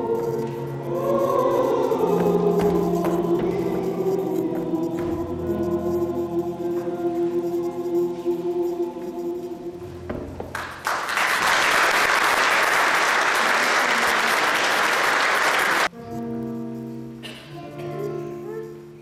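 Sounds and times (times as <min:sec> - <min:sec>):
choir holding chord: 0:00.0 - 0:10.2
sustained music notes: 0:00.0 - 0:10.4
audience applause: 0:10.5 - 0:15.9.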